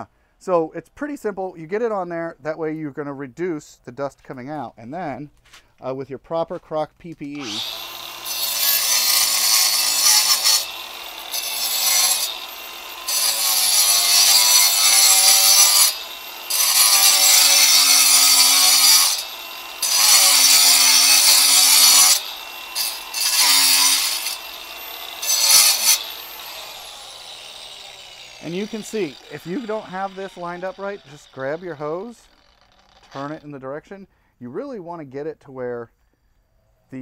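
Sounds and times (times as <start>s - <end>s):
power saw grinding through stone: 7.3s - 33.6s.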